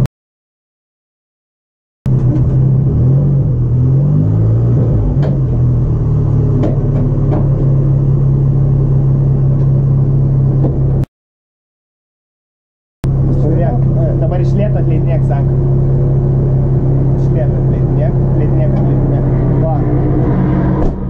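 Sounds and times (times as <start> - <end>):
race car engine idling: 5.4 - 11.0, 13.0 - 20.1.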